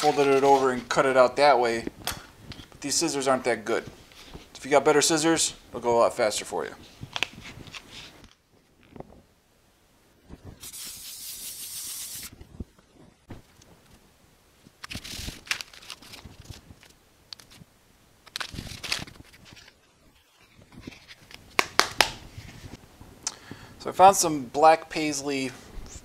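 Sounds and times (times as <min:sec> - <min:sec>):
aerosol spray hissing: 0:10.6 - 0:12.3.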